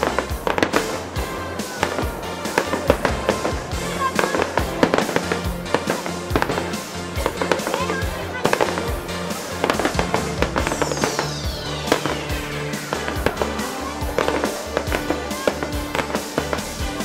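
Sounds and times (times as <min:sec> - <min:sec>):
background music: 0:00.0 - 0:17.0
firework shells bursting: 0:00.0 - 0:17.0.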